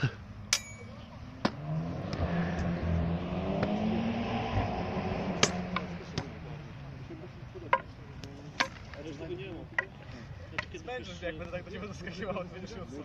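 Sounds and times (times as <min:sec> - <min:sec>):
vehicle engine droning past: 0:01.1 - 0:07.0.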